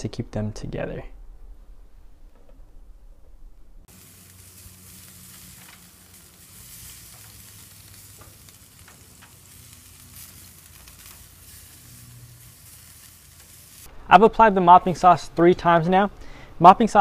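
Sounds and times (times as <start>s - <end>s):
low hum: 0.0s - 14.4s
skewers sizzling on a grill: 3.9s - 13.9s
small crackles: 3.9s - 13.9s.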